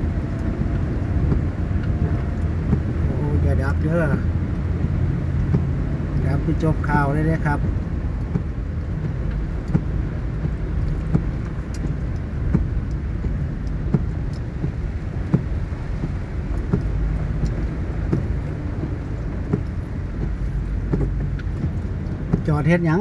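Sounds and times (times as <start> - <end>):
car engine and tyres rumbling: 0.0 - 23.0
sharp taps: 7.6 - 22.6.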